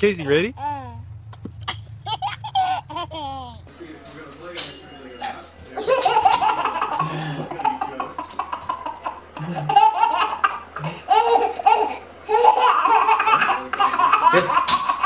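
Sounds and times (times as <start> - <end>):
baby laughing: 0.6 - 3.7, 5.8 - 15.0.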